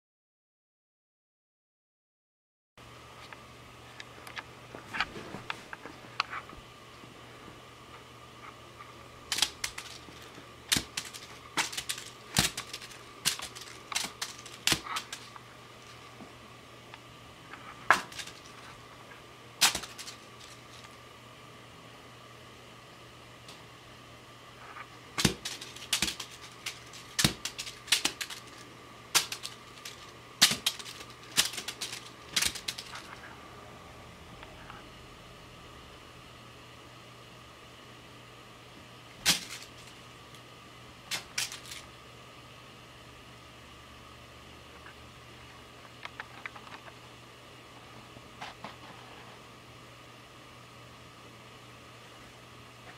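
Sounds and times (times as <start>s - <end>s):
foil ball clicking in a box: 9.3s - 15.3s, 17.9s - 18.6s, 19.6s - 20.8s, 25.2s - 33.1s, 39.2s - 40.0s, 41.1s - 41.8s.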